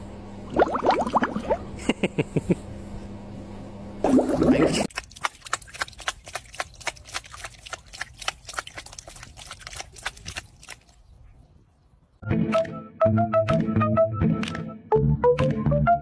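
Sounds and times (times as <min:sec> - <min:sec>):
cat paw splashing water: 0:04.1 - 0:11.0.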